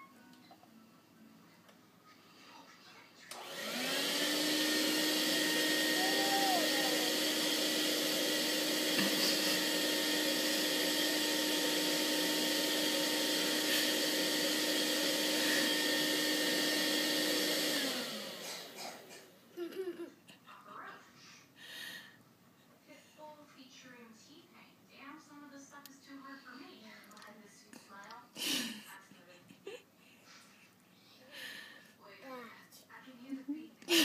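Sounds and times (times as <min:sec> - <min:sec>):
stick vacuum motor whine: 0:03.3 - 0:19.1.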